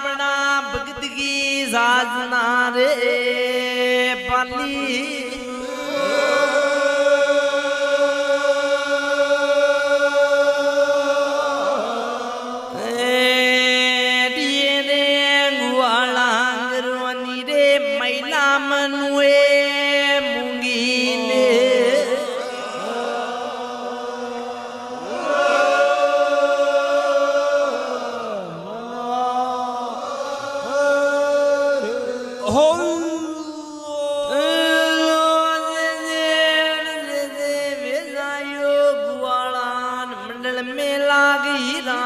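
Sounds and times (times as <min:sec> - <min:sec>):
devotional chanting: 0:00.0 - 0:42.0.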